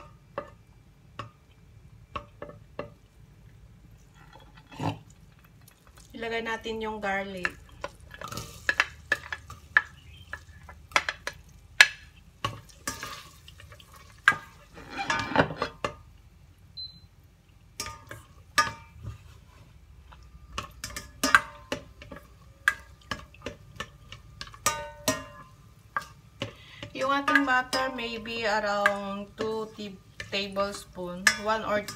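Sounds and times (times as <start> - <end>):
light sizzle: 0.0 - 31.9
spoon scraping a saucepan: 14.3 - 15.8.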